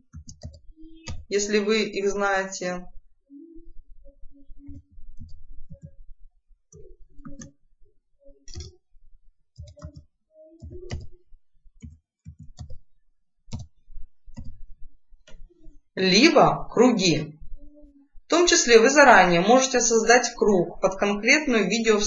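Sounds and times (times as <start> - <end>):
keyboard typing clicks: 0.1 - 1.3, 7.2 - 7.6, 8.5 - 8.8, 9.6 - 11.2, 11.8 - 12.8, 13.5 - 13.7, 14.3 - 14.6.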